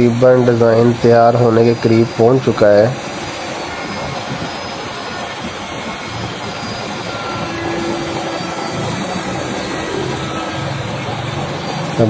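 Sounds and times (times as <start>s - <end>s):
electric router cutting wood: 3.0s - 12.0s.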